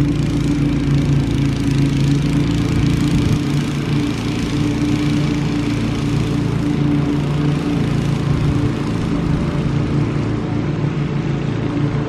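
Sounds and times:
lawn mower engine drone: 0.0s - 12.0s.

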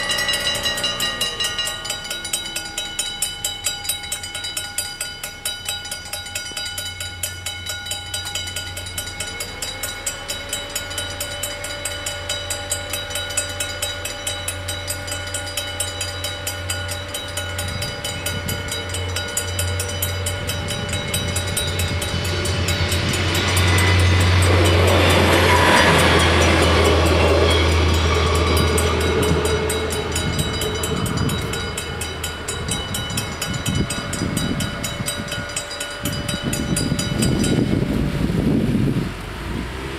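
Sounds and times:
level crossing warning bells: 0.0s - 38.6s
train passing: 0.0s - 39.9s.

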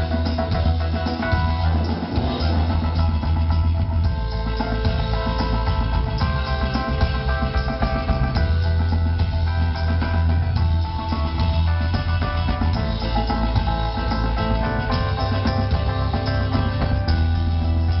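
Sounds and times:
drum kit: 0.0s - 18.0s
heavy bass line: 0.0s - 18.0s
live band playing instrumental: 0.0s - 18.0s.

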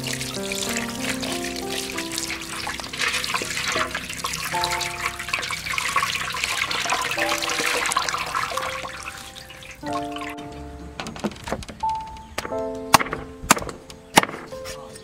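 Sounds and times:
water splashing in a basin: 0.0s - 10.4s
faint background music: 0.0s - 15.0s.

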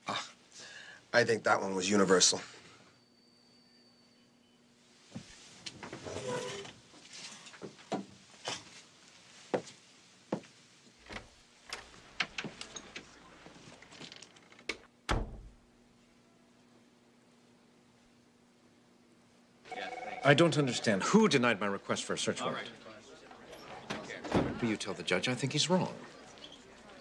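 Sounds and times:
chair shifting: 5.7s - 7.8s
door shutting with deep thud: 15.1s - 15.6s, 23.9s - 24.6s.

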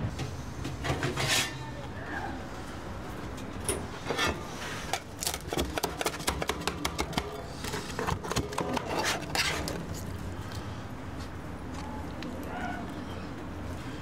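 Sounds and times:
metal spatula scraping metal pan: 1.0s - 1.6s, 8.5s - 9.8s.

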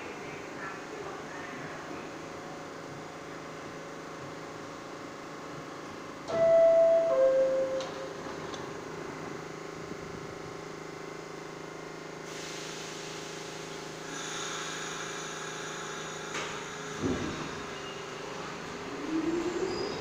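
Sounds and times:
subway train equipment humming: 0.0s - 20.0s
hiss of air: 12.3s - 16.9s.

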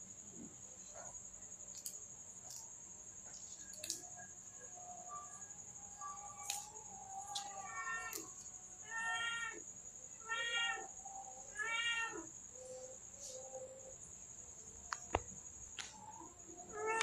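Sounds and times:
cat meowing: 10.2s - 10.9s, 11.5s - 12.3s.

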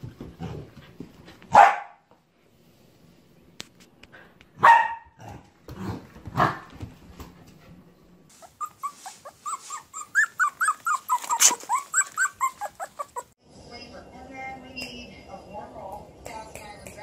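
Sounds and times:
puppy barking: 1.5s - 2.0s, 4.6s - 5.3s, 6.4s - 6.7s, 8.4s - 13.3s
puppy whimpering yelps: 8.3s - 13.3s.

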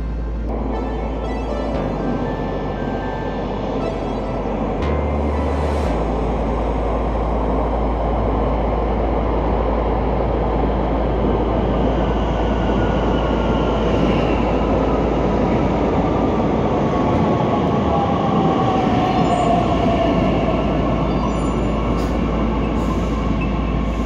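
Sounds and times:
train whine falling in pitch: 0.0s - 8.4s.

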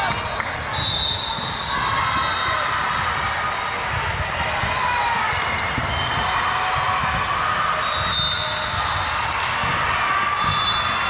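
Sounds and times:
echoing hubbub: 0.0s - 11.0s
volleyballs bouncing on floor: 3.8s - 8.8s.

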